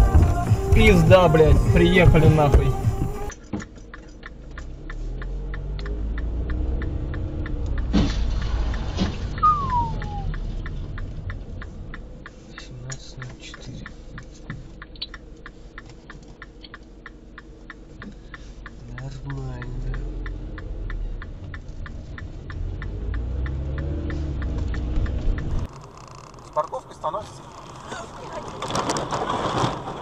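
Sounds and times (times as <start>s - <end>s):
low engine drone: 0.0s - 27.6s
turn signal relay ticking: 0.0s - 28.4s
short falling squeal: 9.4s - 10.4s.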